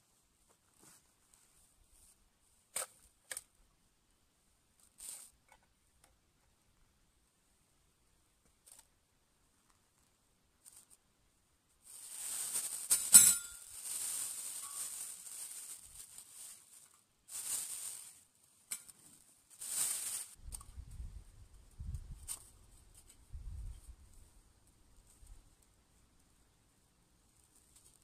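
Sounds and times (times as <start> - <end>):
plastic bag rustling: 11.8 - 20.4.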